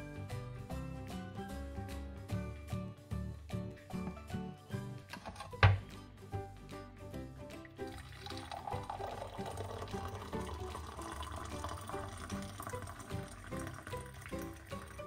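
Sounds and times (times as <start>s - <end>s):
music with plucked notes: 0.0s - 15.0s.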